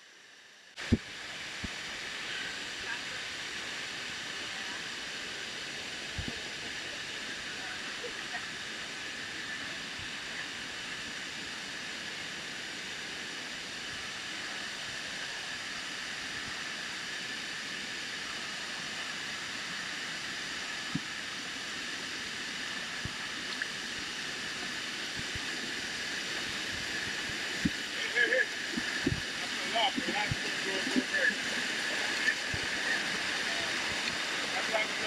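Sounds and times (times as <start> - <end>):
river rushing over rocks: 13.1 - 35.0.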